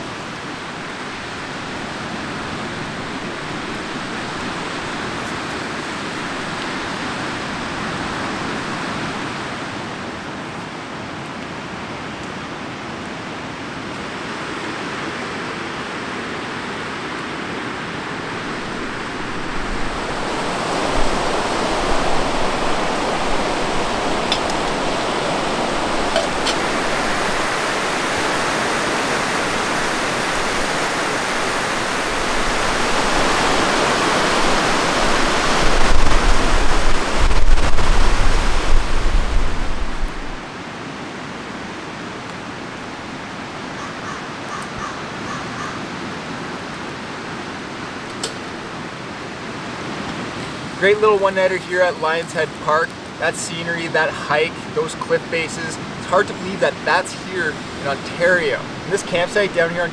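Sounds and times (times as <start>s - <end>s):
waves breaking on stony shore: 0.0s - 11.2s, 13.4s - 40.6s
wind rumbling on microphone: 16.6s - 40.6s.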